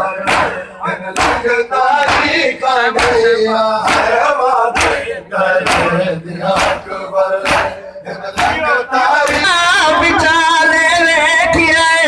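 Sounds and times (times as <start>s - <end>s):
men chanting: 0.0s - 12.0s
hands slapping chests: 0.2s - 2.4s, 3.0s - 4.2s, 4.8s - 5.9s, 6.5s - 7.8s, 8.4s - 9.6s.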